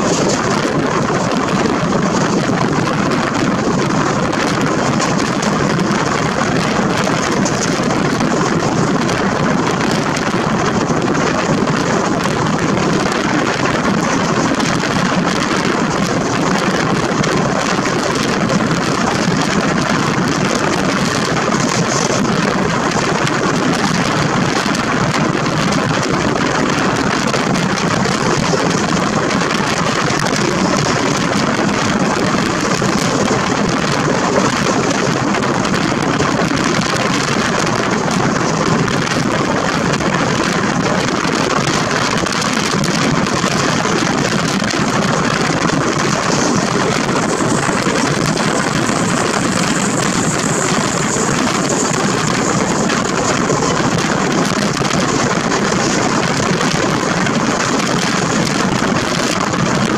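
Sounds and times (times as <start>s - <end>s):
wheels on rails: 0.0s - 59.9s
wind on microphone: 0.0s - 59.9s
wind rushing: 0.0s - 59.9s.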